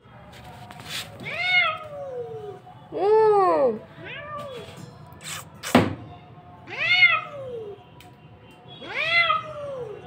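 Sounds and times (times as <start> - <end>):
sharp knock: 5.7 - 6.0.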